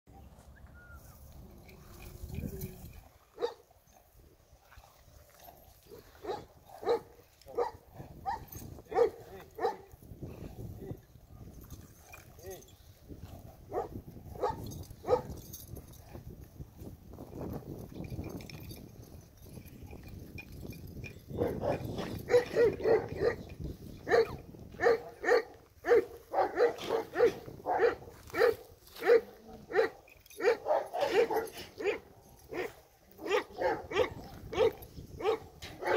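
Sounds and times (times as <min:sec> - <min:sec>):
dog barking: 0:03.4 - 0:03.6, 0:06.2 - 0:09.9, 0:13.7 - 0:15.3, 0:21.4 - 0:23.4, 0:24.1 - 0:35.9.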